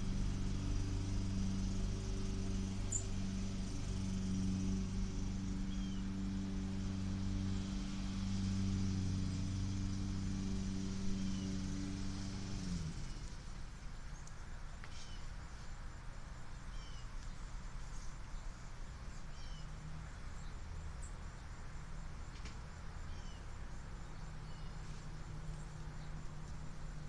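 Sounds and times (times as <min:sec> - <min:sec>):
bird chirping: 0:00.0 - 0:07.7, 0:10.8 - 0:12.2, 0:13.8 - 0:15.7, 0:16.4 - 0:21.6, 0:23.1 - 0:27.0
low engine hum: 0:00.0 - 0:27.0.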